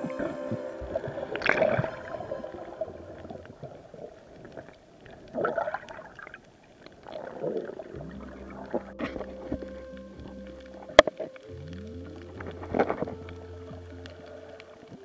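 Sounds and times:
steady low hum: 0.0s - 4.4s
underwater gurgling: 0.0s - 15.0s.

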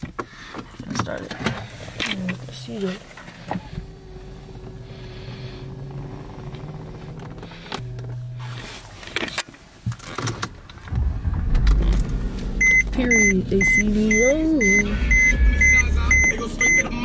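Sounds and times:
car interior mechanical hum: 0.0s - 17.0s
sharp clicks and knocks: 9.2s - 13.4s.

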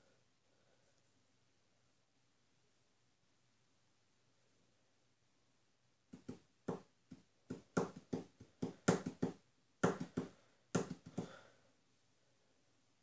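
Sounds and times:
fingers tapping on wooden shelf: 6.1s - 11.4s.

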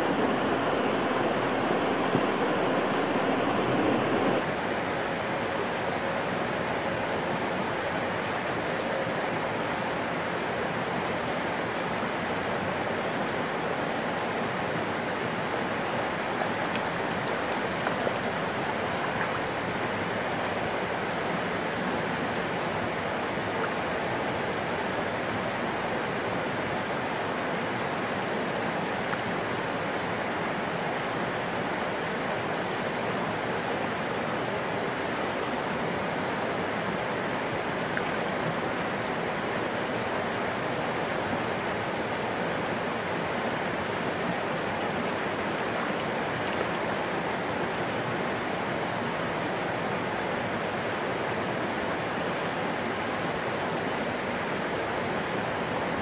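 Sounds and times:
creek water flowing: 0.0s - 56.0s.

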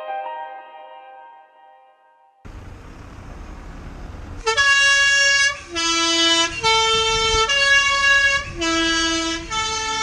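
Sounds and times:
bus three-tone horn: 4.4s - 10.0s.

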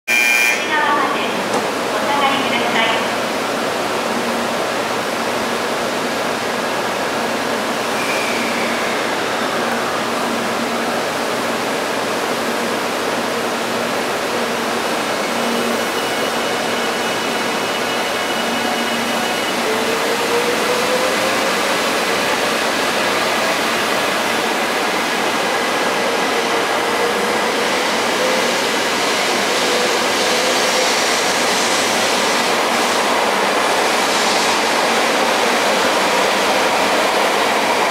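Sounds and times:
train equipment hissing: 27.9s - 35.1s.

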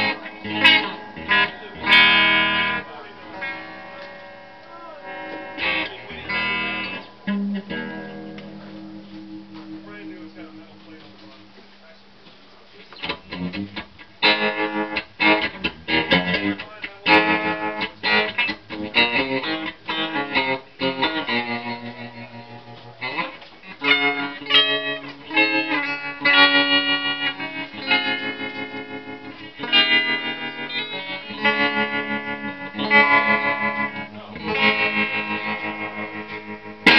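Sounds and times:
electric guitar chords: 0.0s - 12.3s, 12.9s - 36.9s.

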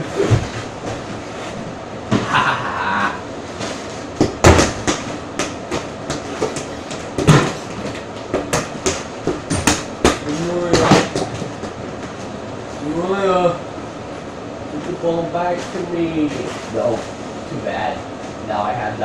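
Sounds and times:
rubber ball thumps: 4.2s - 11.8s.

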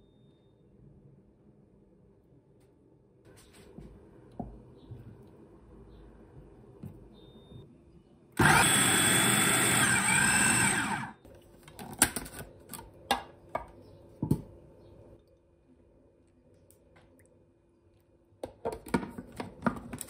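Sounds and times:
food processor running: 8.4s - 11.2s.

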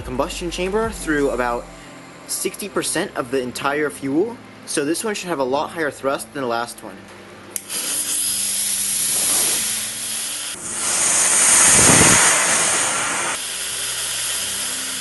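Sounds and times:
fuse hissing: 7.6s - 15.0s
rocket motor rushing hiss: 7.6s - 15.0s.

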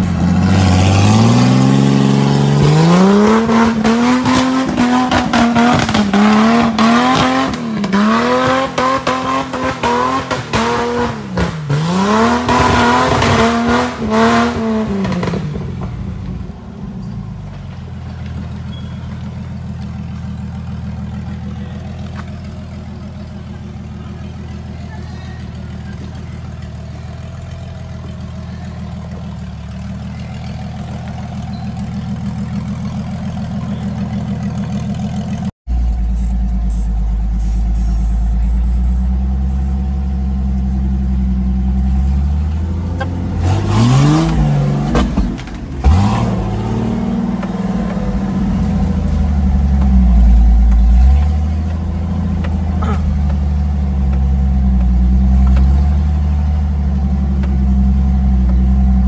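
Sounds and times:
off-road car engine labouring: 0.0s - 59.0s
engine revving inside car cab: 41.5s - 59.0s.

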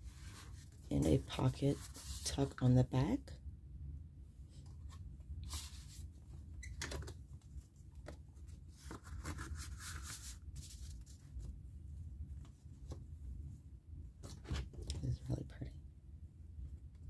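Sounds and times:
paper pages turning: 8.0s - 11.5s.

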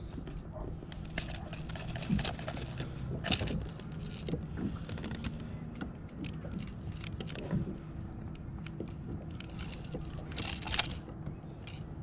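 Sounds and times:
tool clicking and rattling: 0.9s - 7.5s, 8.6s - 11.1s.

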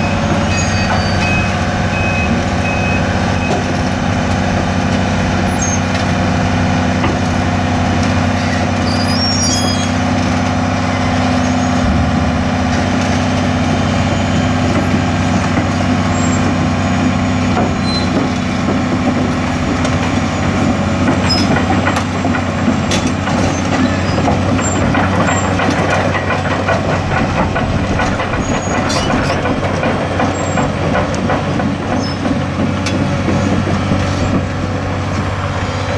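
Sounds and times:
metallic clanking and squealing: 0.0s - 2.4s, 5.5s - 6.0s, 8.2s - 16.8s, 17.6s - 18.4s, 20.2s - 22.0s, 22.9s - 31.3s, 31.9s - 32.4s
diesel engine running: 0.0s - 35.9s.

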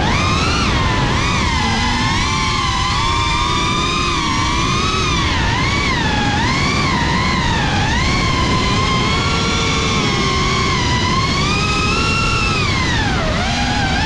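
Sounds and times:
drone propellers whining: 0.0s - 14.0s.

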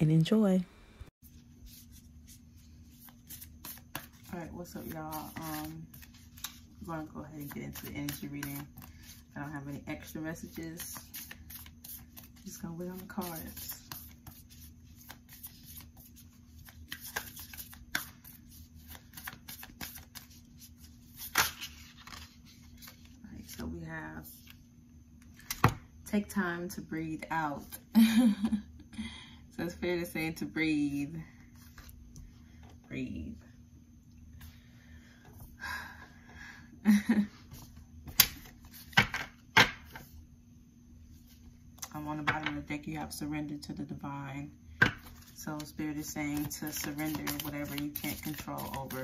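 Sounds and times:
faint steady hum: 0.0s - 49.0s
cards being shuffled: 1.7s - 6.8s, 7.4s - 9.4s, 10.1s - 23.6s, 44.9s - 49.0s
cards clicking and tapping: 16.6s - 20.4s, 46.3s - 49.0s.

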